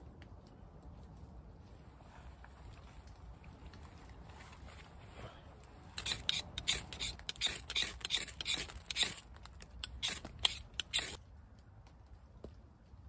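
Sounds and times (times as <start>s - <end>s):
striker scraping fire rod: 5.9s - 11.2s.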